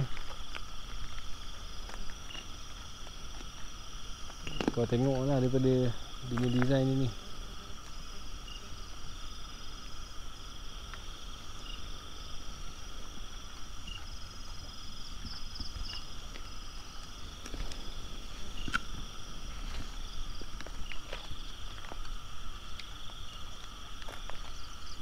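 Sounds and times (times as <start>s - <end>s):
insect chirps: 0.0s - 25.0s
insects trilling: 0.0s - 25.0s.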